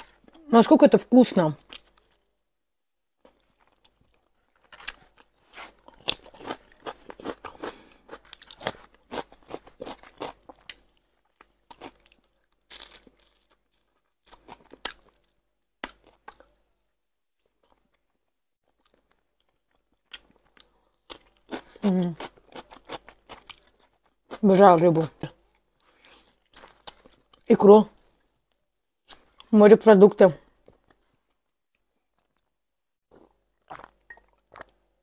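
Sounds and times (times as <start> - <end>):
person chewing with smacks: 33.1 - 34.8.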